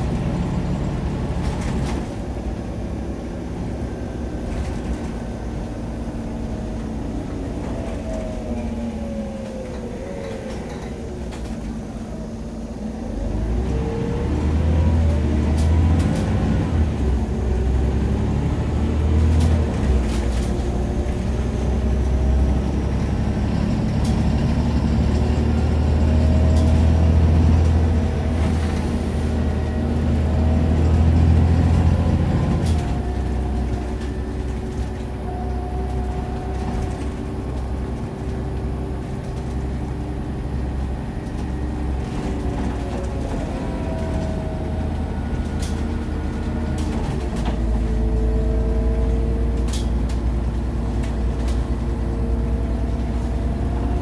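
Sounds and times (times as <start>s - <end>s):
bus diesel engine rumble: 0.0s - 54.0s
interior clicks and rattles: 35.9s - 54.0s.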